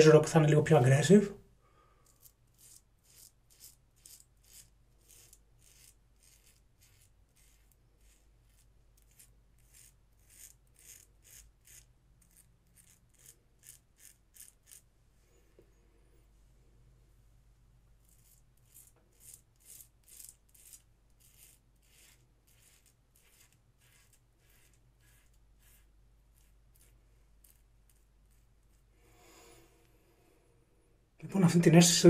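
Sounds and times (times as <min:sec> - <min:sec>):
razor scraping stubble: 0:02.0 - 0:14.9, 0:18.0 - 0:28.9.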